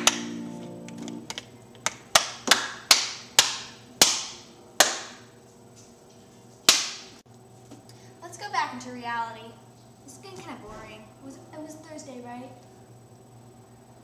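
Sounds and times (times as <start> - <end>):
acoustic guitar chord ringing: 0.0 - 1.4.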